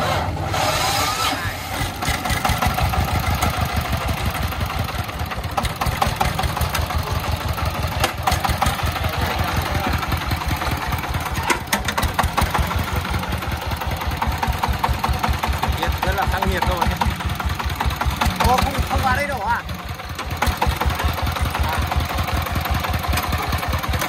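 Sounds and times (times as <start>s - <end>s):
diesel engine chugging: 0.0s - 24.0s
sharp engine knocks: 1.8s - 9.2s, 9.9s - 24.0s.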